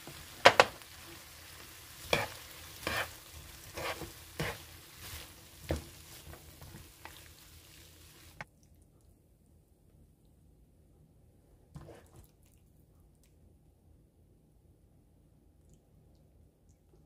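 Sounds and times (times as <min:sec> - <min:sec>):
faint sizzle: 0:00.0 - 0:09.2
utensil clacking and scraping pan: 0:02.0 - 0:04.7.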